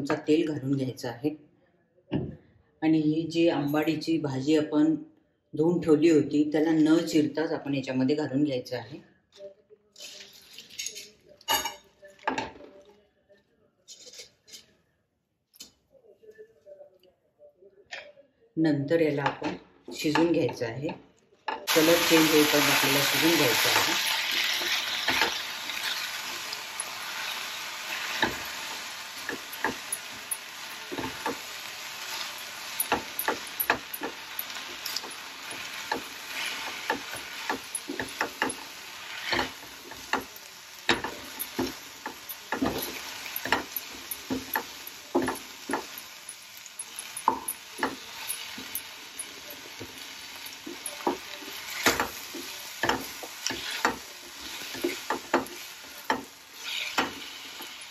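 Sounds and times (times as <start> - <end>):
leaves sizzling in oil: 21.7 - 57.9
wooden spatula scraping pan: 34.8 - 40.2, 47.8 - 57.7.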